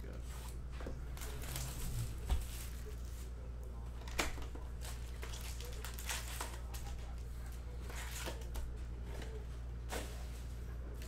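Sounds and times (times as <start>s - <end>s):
steady low hum: 0.0s - 11.0s
plastic wrap crinkling: 4.0s - 7.2s.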